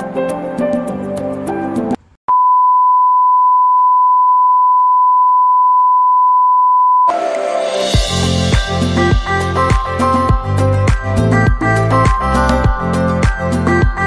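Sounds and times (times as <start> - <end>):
background music: 0.0 - 2.0, 7.1 - 14.0
high test-tone beep: 2.3 - 7.1.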